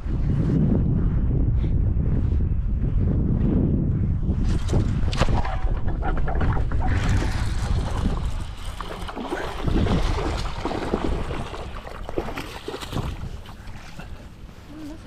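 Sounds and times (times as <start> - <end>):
wind rumbling on microphone: 0.0 - 15.0
fish splashing in water: 6.4 - 13.8.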